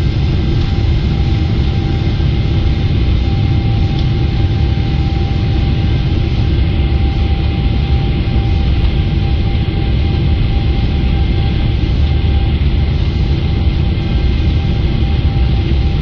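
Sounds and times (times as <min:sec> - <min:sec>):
airliner cabin rumble: 0:00.0 - 0:16.0
faint jet engine whine: 0:00.0 - 0:16.0.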